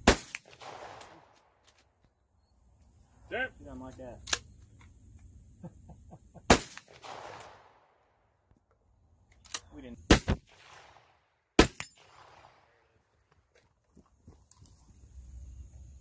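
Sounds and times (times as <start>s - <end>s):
gunshots: 0.0s - 1.5s, 6.5s - 7.9s, 10.1s - 13.0s.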